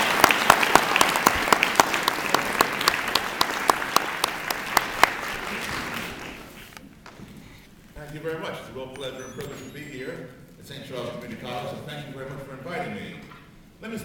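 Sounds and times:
sharp individual claps: 0.0s - 6.4s
audience applauding: 0.0s - 6.7s.

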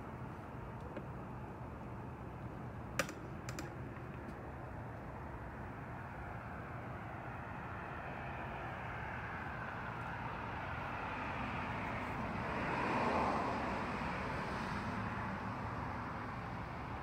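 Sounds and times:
vehicle passing: 5.4s - 16.1s.

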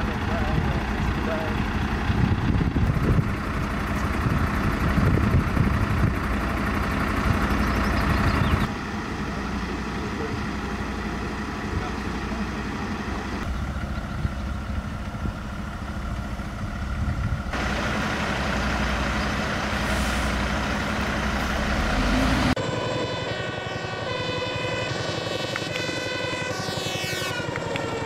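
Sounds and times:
fire truck diesel engines running: 0.0s - 28.0s.

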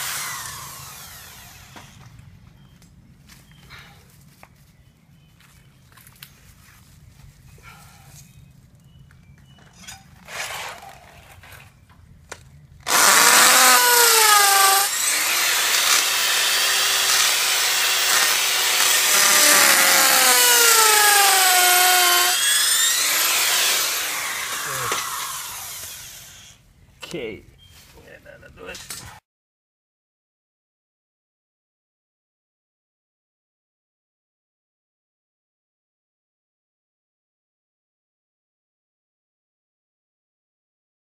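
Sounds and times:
hammer drill boring into soil: 0.0s - 2.0s, 12.9s - 26.6s.

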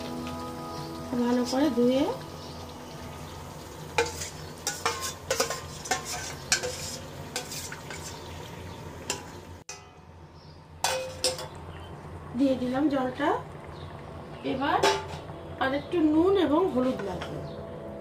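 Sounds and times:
metal spoon scraping steel bowl: 4.0s - 8.3s
sharp metal clanks: 9.1s - 10.1s.

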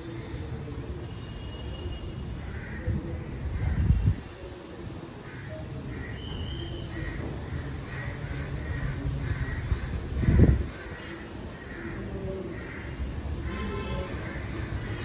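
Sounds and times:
crows cawing: 2.4s - 3.0s, 5.2s - 15.0s.

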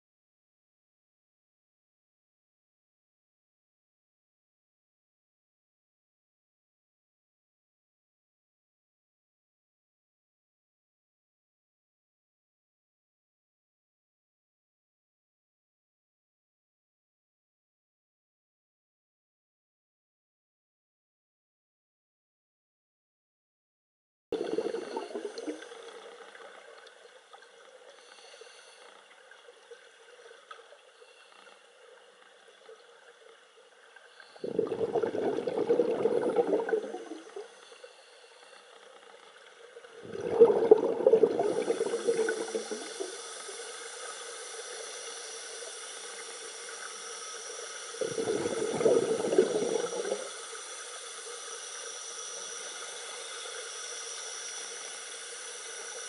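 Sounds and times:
underwater exhaled bubbling: 24.4s - 26.0s, 34.4s - 37.5s, 40.0s - 43.4s, 48.0s - 50.4s
steady air hiss: 27.8s - 29.0s, 41.6s - 56.0s.

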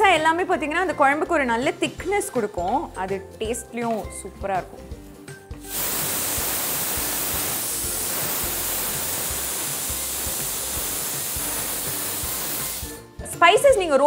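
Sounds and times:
pressure cooker whistle hissing: 5.6s - 13.0s.

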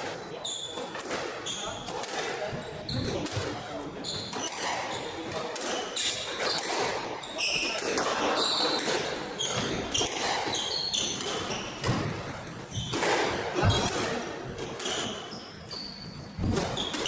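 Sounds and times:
shoes squeaking on wooden floor: 8.4s - 12.1s, 12.7s - 13.9s, 14.8s - 17.0s.

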